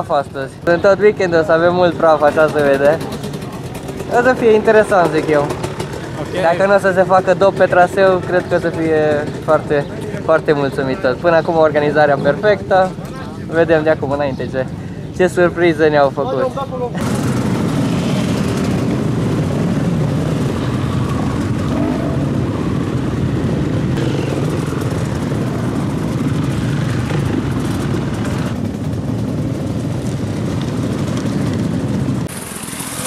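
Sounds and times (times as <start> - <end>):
dirt bikes riding past: 0.0 - 33.0.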